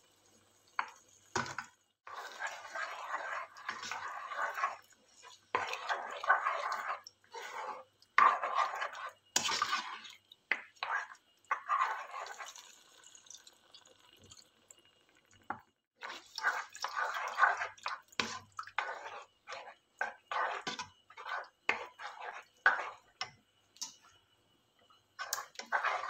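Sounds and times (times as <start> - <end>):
spoon stirring thick sauce: 0.8 - 12.8, 16.0 - 24.0, 25.2 - 26.0.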